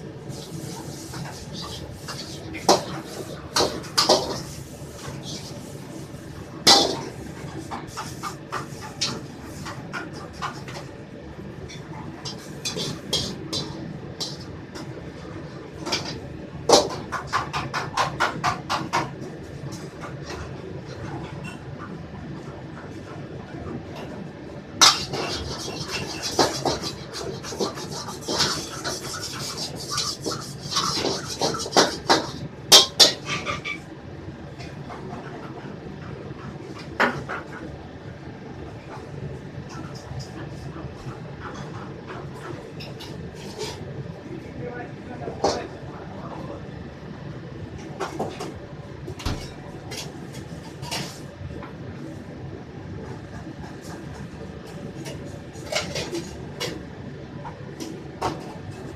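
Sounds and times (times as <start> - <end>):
hot oil sizzling: 0.0 - 10.9, 11.6 - 20.4, 24.8 - 33.8
utensil scraping a wok: 0.2 - 10.9, 11.5 - 21.6, 24.8 - 33.8, 39.8 - 43.9, 49.9 - 51.3, 53.0 - 56.8.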